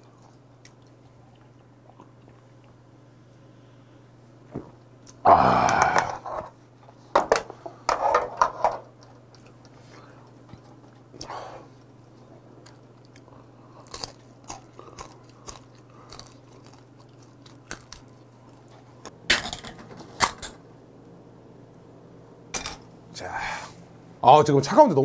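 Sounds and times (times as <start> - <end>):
person chewing crunchy snacks: 12.1 - 19.6.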